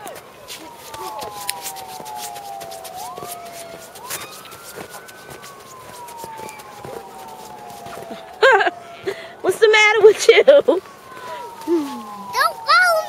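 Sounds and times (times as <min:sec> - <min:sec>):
emergency siren wailing: 0:00.0 - 0:13.0.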